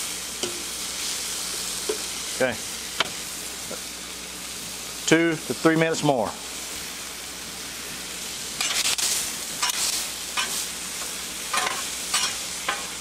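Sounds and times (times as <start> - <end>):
food sizzling on a griddle: 0.0 - 13.0
metal spatula scraping steel: 11.5 - 12.9.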